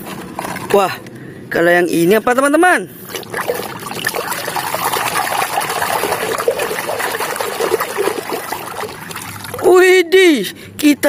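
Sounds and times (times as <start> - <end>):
water sloshing and splashing: 0.0 - 0.9, 3.0 - 9.8.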